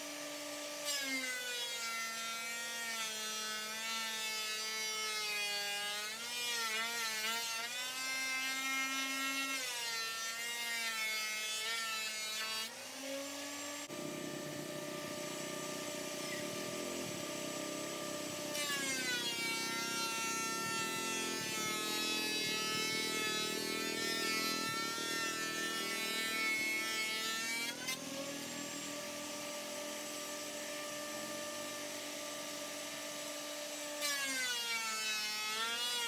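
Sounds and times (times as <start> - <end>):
thickness planer motor whine: 11.4 - 36.0.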